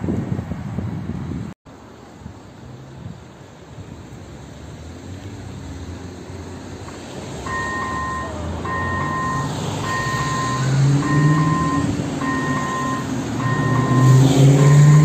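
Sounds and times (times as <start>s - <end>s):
vehicle engine noise: 0.0s - 15.0s
two-tone electronic crossing bell: 7.5s - 15.0s.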